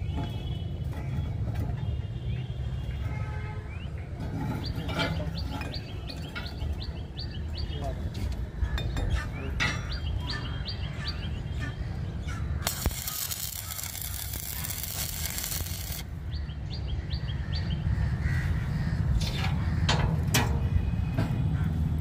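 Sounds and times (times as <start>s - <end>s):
birds chirping: 0.4s - 22.0s
loud hiss: 12.7s - 16.1s.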